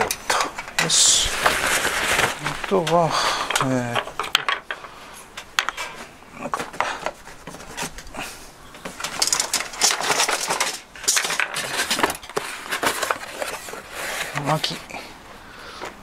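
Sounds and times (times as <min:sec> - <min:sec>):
cardboard box rustling and scraping: 0:00.8 - 0:03.1, 0:05.8 - 0:08.1, 0:08.8 - 0:14.9
small objects knocking and clinking: 0:02.8 - 0:04.9, 0:08.8 - 0:13.1.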